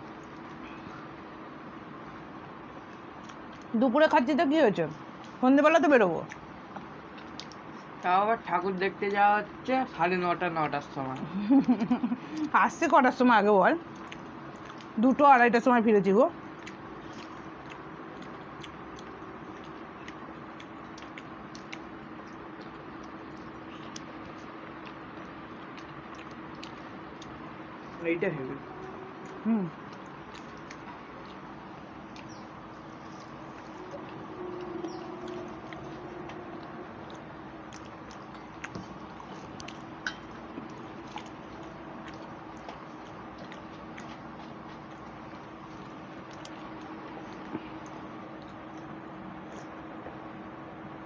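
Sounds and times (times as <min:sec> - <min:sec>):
quiet chewing: 0:00.0 - 0:03.8, 0:04.9 - 0:05.4, 0:06.2 - 0:08.2, 0:13.8 - 0:15.0, 0:16.3 - 0:28.0, 0:28.6 - 0:51.0
low room hum: 0:00.0 - 0:51.0
eating clicks and smacks: 0:06.2 - 0:08.2, 0:13.8 - 0:15.0, 0:16.5 - 0:27.5, 0:29.2 - 0:50.2
fingers squishing food: 0:06.2 - 0:08.2, 0:16.5 - 0:27.9, 0:28.8 - 0:50.1.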